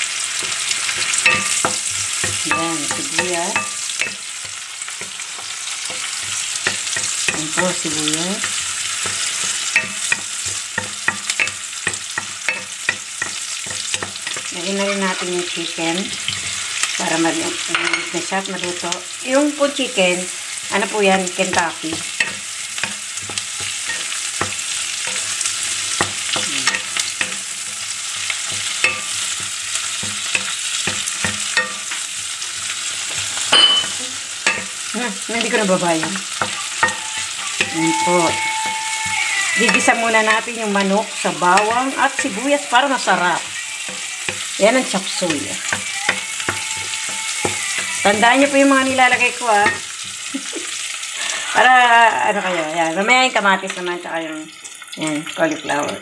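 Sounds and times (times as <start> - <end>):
garlic and onion sizzling in oil: 0.0 - 56.0
wooden spatula clacking on pan: 0.4 - 15.3, 19.7 - 34.9, 35.8 - 50.3.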